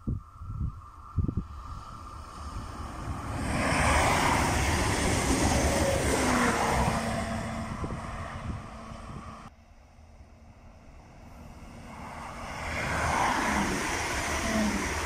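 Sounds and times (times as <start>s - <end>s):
train passing at speed: 0.0s - 15.0s.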